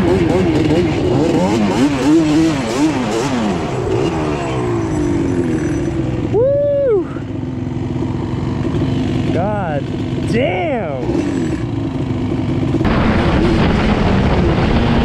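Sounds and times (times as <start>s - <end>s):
two-stroke engine revving: 0.0s - 6.4s, 7.0s - 15.0s
person shouting: 6.2s - 7.3s.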